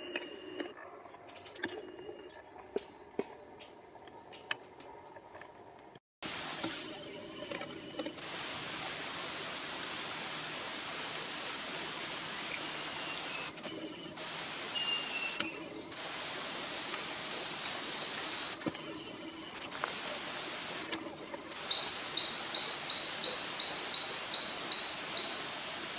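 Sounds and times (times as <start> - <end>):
rainforest ambience hiss: 6.2 - 25.9
high bird whistles: 14.8 - 15.6.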